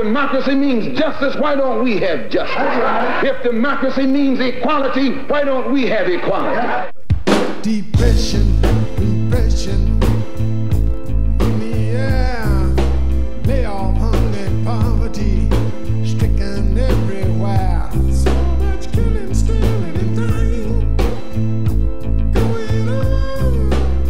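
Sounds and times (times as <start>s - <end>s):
song with heavy bass and drums: 7.0s - 24.0s.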